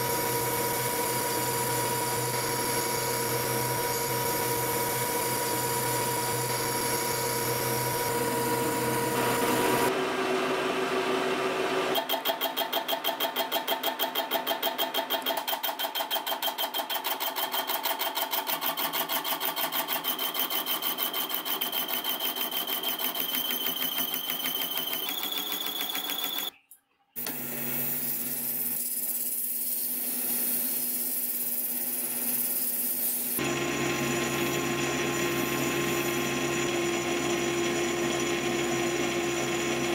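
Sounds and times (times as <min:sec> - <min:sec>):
hiss of ball spinning in lathe: 0:27.4 - 0:33.4.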